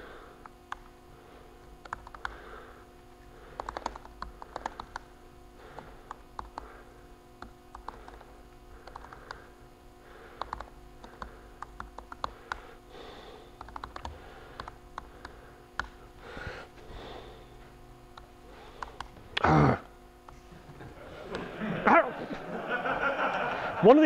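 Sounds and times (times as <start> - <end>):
electrical hum: 0.0 - 24.0
laptop keyboard clicks: 1.8 - 2.3, 3.5 - 5.1, 7.4 - 9.4, 10.4 - 12.6, 13.6 - 16.0.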